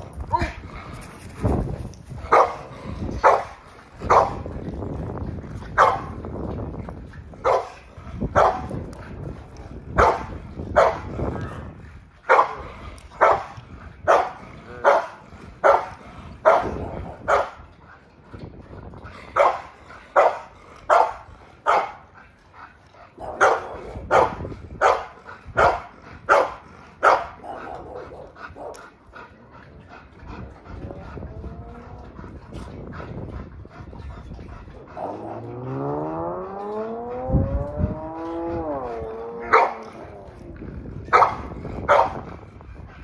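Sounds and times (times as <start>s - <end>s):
dog barking: 2.3s - 2.6s, 3.2s - 3.5s, 4.1s - 4.4s, 7.5s - 7.7s, 8.4s - 8.6s, 10.0s - 11.0s, 12.3s - 12.6s, 13.2s - 13.5s, 14.1s - 17.6s, 19.4s - 19.6s, 20.2s - 22.0s, 23.3s - 27.4s, 39.4s - 39.8s, 41.1s - 42.2s.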